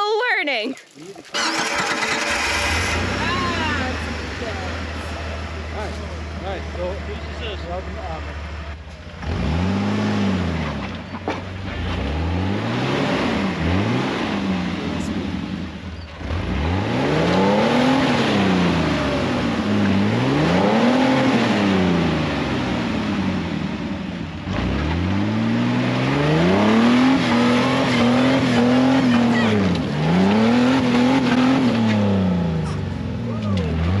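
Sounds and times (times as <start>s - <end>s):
car engine revving: 1.4s - 34.0s.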